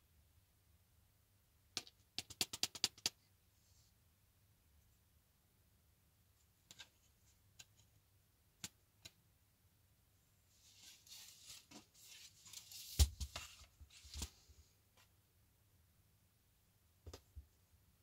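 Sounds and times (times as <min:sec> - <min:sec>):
keyboard rustling and scraping: 0:10.6 - 0:14.4.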